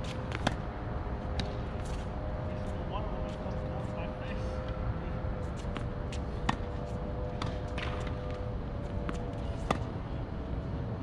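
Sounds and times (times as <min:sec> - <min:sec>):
racket hitting tennis ball: 0:00.0 - 0:00.6, 0:05.6 - 0:08.3, 0:09.0 - 0:10.0
faint hum: 0:00.0 - 0:11.0.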